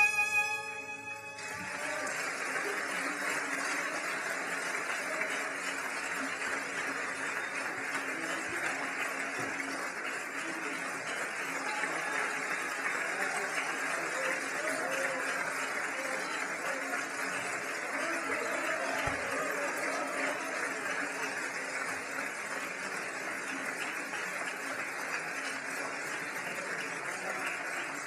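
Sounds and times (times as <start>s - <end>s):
violin and piano playing: 0.0s - 1.7s
audience applauding: 0.0s - 28.0s.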